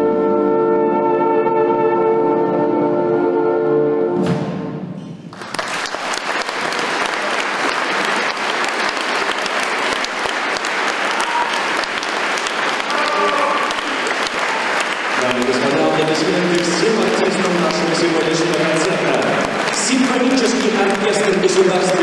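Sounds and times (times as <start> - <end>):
audience applauding: 5.3 - 22.0.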